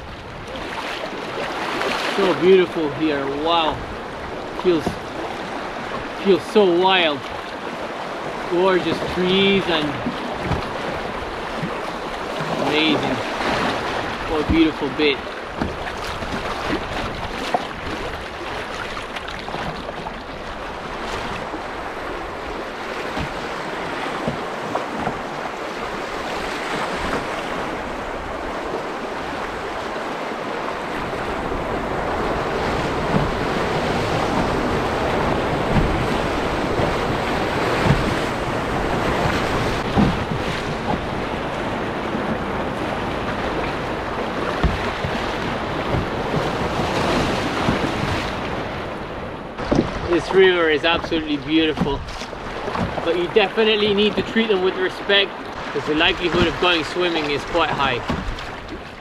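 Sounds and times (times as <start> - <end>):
rapids rushing water: 0.0 - 59.0
wind buffeting microphone: 7.7 - 53.4.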